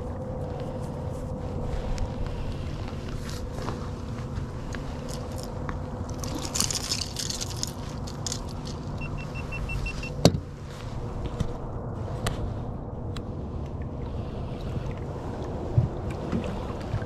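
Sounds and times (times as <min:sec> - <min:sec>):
boat engine low rumble: 0:00.0 - 0:17.0
metallic rattle of gear: 0:05.0 - 0:09.0
quick electronic beeps: 0:09.0 - 0:10.2.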